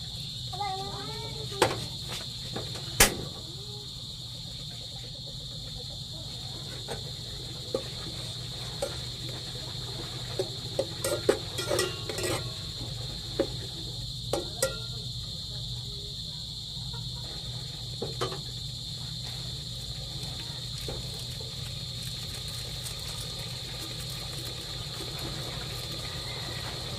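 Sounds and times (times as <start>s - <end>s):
crickets chirring: 0.0s - 26.9s
metal spoon scraping pot: 11.0s - 12.6s
spoon clinking on pot: 11.0s - 12.6s, 14.4s - 14.9s.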